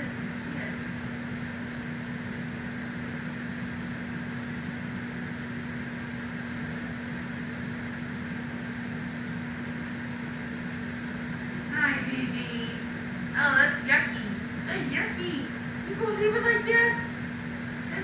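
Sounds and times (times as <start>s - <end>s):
steady low mechanical hum: 0.0s - 18.0s.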